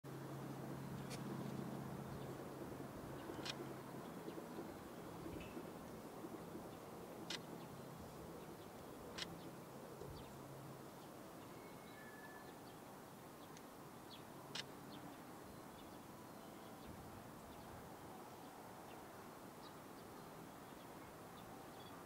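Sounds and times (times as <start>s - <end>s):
faint bird chirps: 11.4s - 12.8s, 13.4s - 17.0s.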